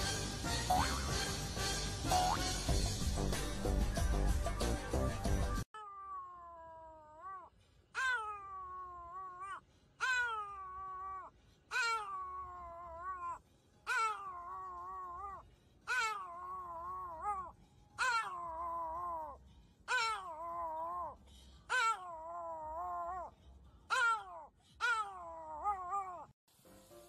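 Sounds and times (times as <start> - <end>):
puppy howling: 5.8 - 23.3, 23.9 - 26.3.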